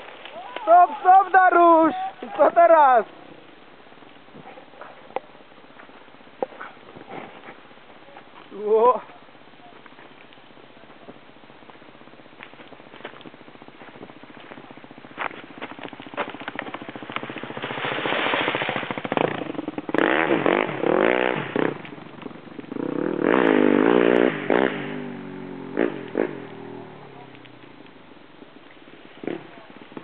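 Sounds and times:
motorcycle engine revving hard: 0:14.8 - 0:27.4.

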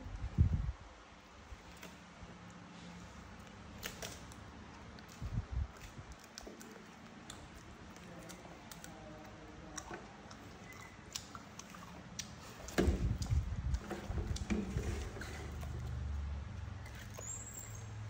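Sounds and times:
monkeys chewing seeds: 0:01.5 - 0:18.0
bumps and rustling: 0:12.5 - 0:16.0.

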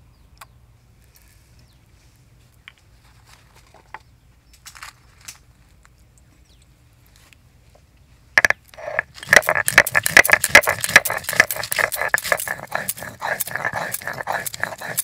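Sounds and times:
peppercorns cracking: 0:08.4 - 0:15.0
stone knocking and scraping stone: 0:08.4 - 0:15.0.

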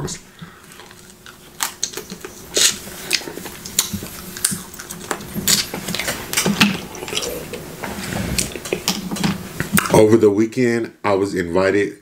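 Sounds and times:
crab shells cracking while eating: 0:00.7 - 0:07.7.

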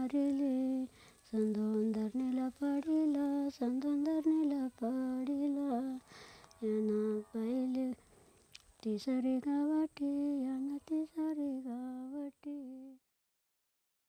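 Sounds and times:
woman humming: 0:00.0 - 0:08.0.

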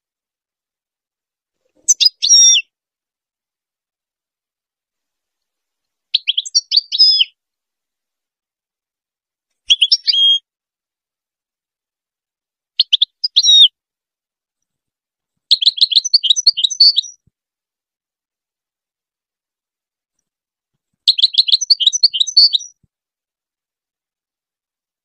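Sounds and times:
finch twittering song: 0:01.8 - 0:02.7, 0:06.1 - 0:07.4, 0:09.7 - 0:10.4, 0:12.8 - 0:13.7, 0:15.5 - 0:17.2, 0:21.1 - 0:22.8.

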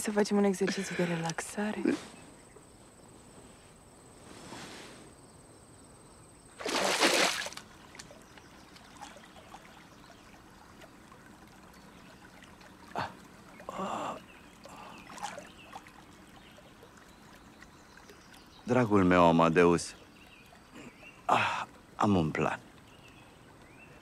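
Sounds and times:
water trickling: 0:06.1 - 0:24.0
water splashing: 0:06.5 - 0:23.9.

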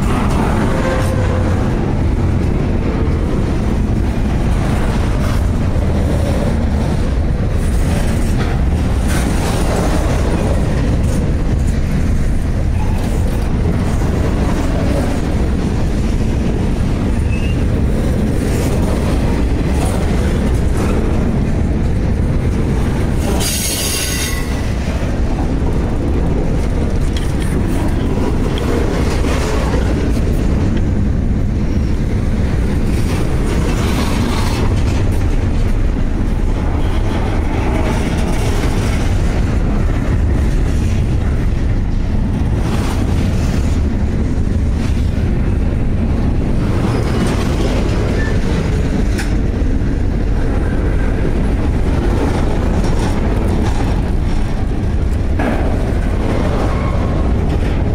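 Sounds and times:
freight train wheels rumbling: 0:00.0 - 0:57.9
high-pitched wheel squeal: 0:17.2 - 0:17.6.

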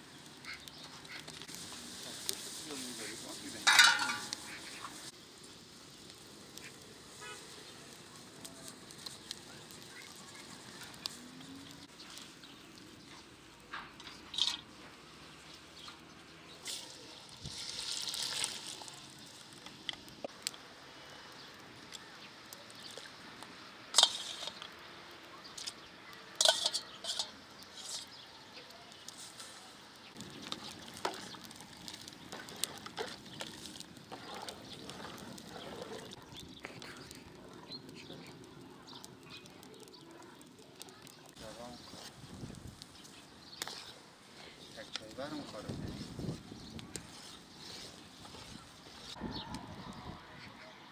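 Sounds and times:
wood fire crackling in stove: 0:00.0 - 0:49.6.

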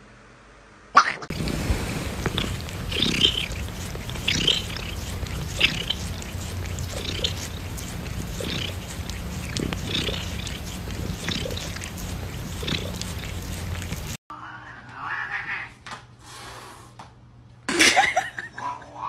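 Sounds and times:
cat purring: 0:01.3 - 0:14.2.

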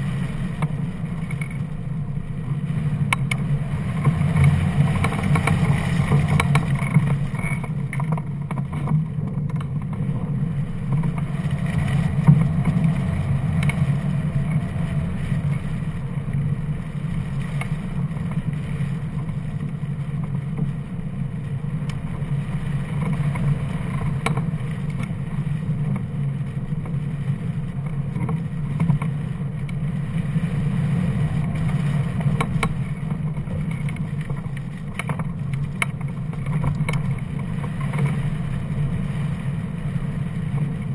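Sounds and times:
wind rushing past microphone: 0:00.0 - 0:19.8.

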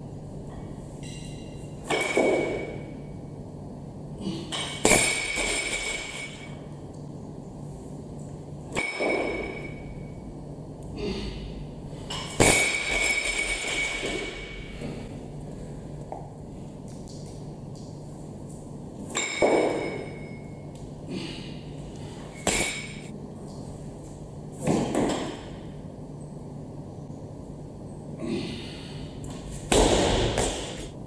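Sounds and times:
metallic ring from bar: 0:08.8 - 0:10.2.

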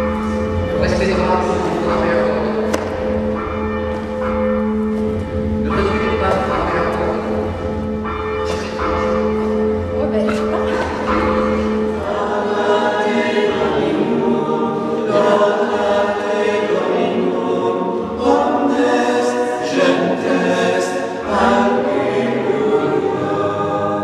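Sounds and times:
church bells ringing: 0:00.0 - 0:24.0
choir singing a chant: 0:10.7 - 0:24.0.

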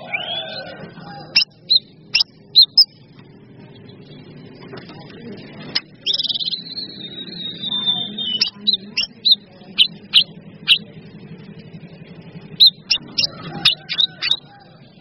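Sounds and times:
steady low hum: 0:00.0 - 0:15.0
sharp bird chirps: 0:01.4 - 0:03.0, 0:05.8 - 0:10.9, 0:12.6 - 0:14.5.

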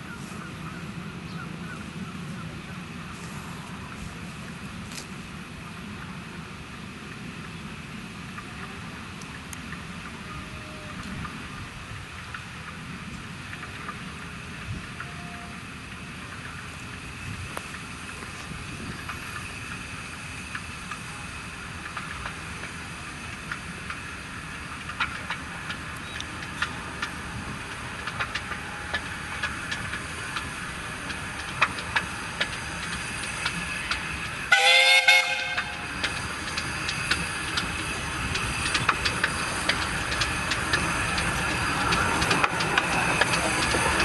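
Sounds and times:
steam train running: 0:00.0 - 0:44.0
wheels clicking over rail joints: 0:00.1 - 0:44.0
steam whistle blast: 0:34.5 - 0:35.8.

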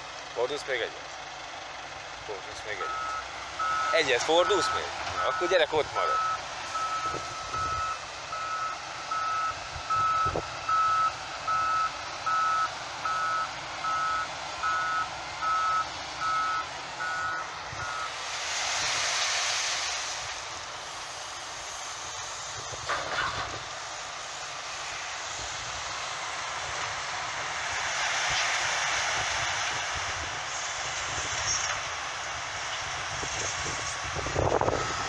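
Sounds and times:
reversing alarm beeping: 0:02.8 - 0:18.2, 0:34.6 - 0:35.0
rushing hiss: 0:18.0 - 0:23.0.

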